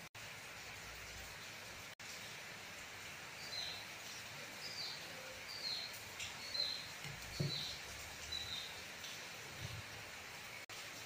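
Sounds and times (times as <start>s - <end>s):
small bird chirping: 4.6s - 8.8s
dull knock: 7.1s - 7.7s.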